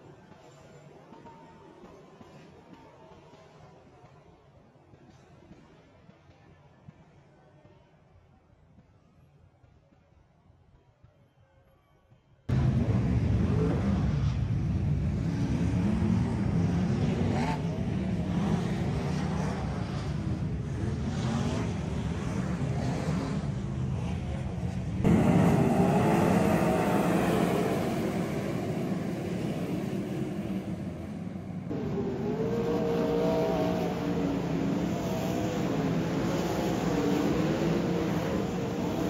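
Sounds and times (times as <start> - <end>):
race car engines revving: 12.5 - 39.0.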